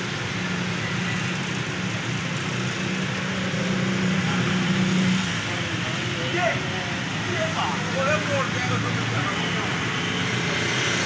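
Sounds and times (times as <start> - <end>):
tyres hissing on wet road: 0.0 - 11.0.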